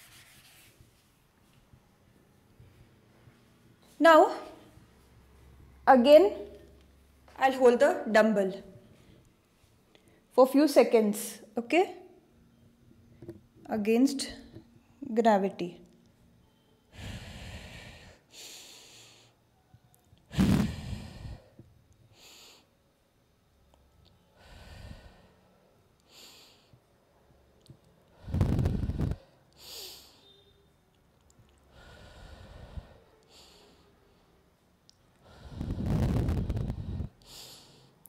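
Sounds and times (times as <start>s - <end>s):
woman breathing: 16.4s - 19.5s, 20.3s - 22.8s, 24.2s - 26.9s, 28.0s - 30.6s, 31.7s - 38.0s
breath hitting microphone: 20.3s - 22.7s, 28.1s - 30.2s, 31.7s - 33.9s, 35.2s - 38.0s.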